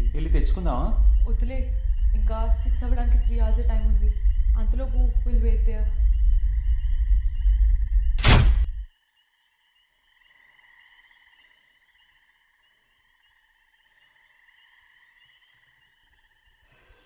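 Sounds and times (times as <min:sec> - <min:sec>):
night insects trilling: 0:00.0 - 0:08.2, 0:08.9 - 0:17.0
loud low rumble: 0:00.0 - 0:08.9.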